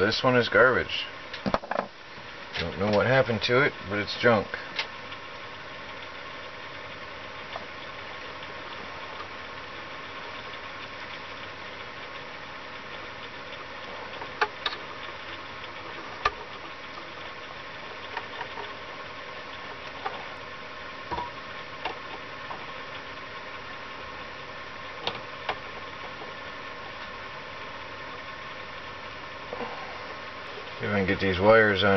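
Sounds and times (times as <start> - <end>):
steady background hum: 0.0 - 31.9
wires and metal parts clicking: 13.0 - 23.1.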